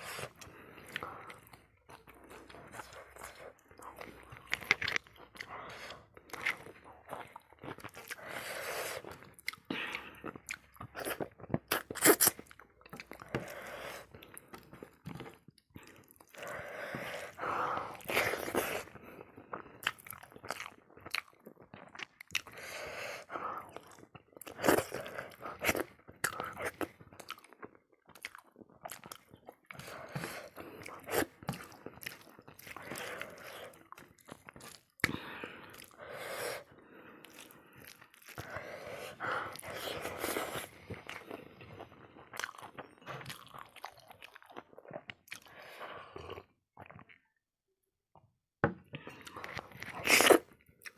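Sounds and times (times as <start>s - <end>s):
chewing and crunching food: 0.0s - 47.4s, 48.8s - 50.9s.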